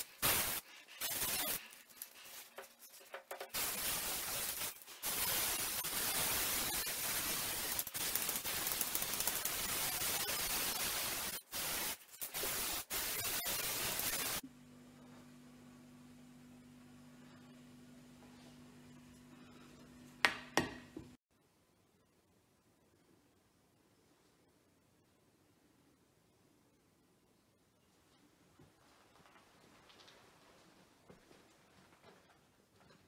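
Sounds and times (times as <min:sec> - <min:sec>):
spray paint can hissing: 0:00.0 - 0:14.4.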